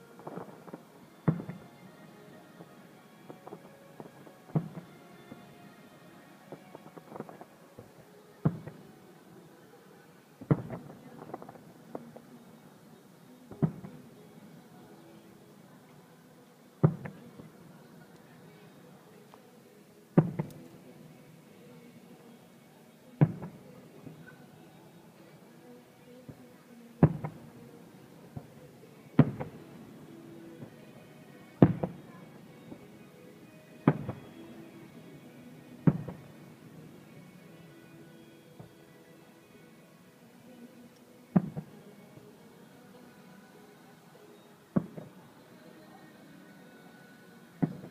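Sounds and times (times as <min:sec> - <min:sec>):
fireworks shells bursting: 0:00.0 - 0:01.8, 0:06.5 - 0:08.9
firework pops and crackles: 0:00.0 - 0:01.9, 0:02.6 - 0:05.5, 0:06.5 - 0:09.0, 0:10.4 - 0:12.4, 0:13.5 - 0:14.1, 0:16.8 - 0:18.3, 0:20.1 - 0:20.9, 0:23.2 - 0:24.4, 0:27.0 - 0:30.8, 0:31.6 - 0:32.9, 0:33.8 - 0:35.0, 0:35.8 - 0:36.8, 0:41.0 - 0:41.8, 0:47.6 - 0:47.9
distant firework bangs: 0:00.2 - 0:01.8, 0:27.0 - 0:30.8, 0:31.6 - 0:32.1, 0:33.8 - 0:34.6, 0:35.8 - 0:36.8.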